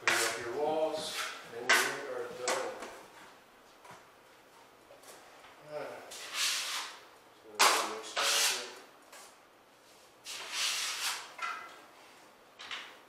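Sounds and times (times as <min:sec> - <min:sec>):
taping knife scraping drywall: 0:06.1 - 0:07.0, 0:07.6 - 0:08.8, 0:10.2 - 0:11.4.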